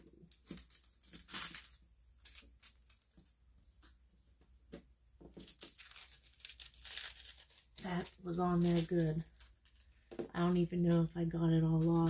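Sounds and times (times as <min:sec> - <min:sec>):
plastic film crackling as peeled: 0:00.2 - 0:03.4, 0:05.4 - 0:10.2.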